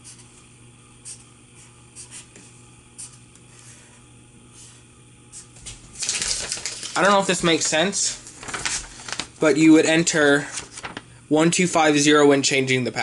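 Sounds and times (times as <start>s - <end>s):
marker writing on paper: 0.0s - 0.3s, 1.0s - 3.8s.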